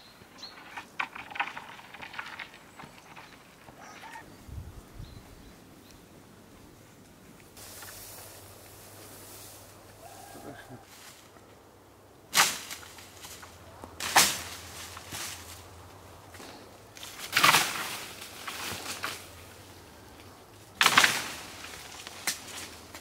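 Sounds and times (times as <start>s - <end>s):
leaves rustling: 0.0s - 23.0s
wooden pole striking branches: 0.3s - 4.2s, 12.3s - 23.0s.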